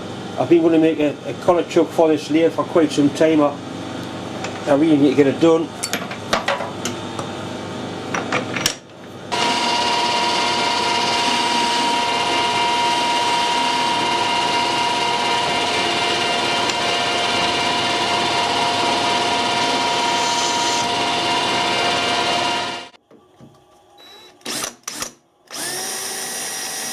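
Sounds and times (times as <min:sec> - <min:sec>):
metal lathe running with whine: 0:09.3 - 0:23.0.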